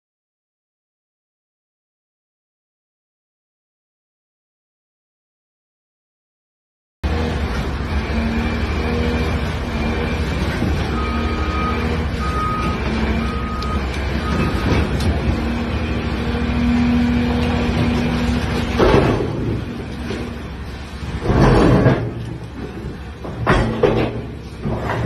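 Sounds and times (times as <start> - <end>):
excavator diesel engine: 7.0 - 25.0
short alarm beeps: 10.9 - 14.6
rubble crashing: 21.0 - 25.0.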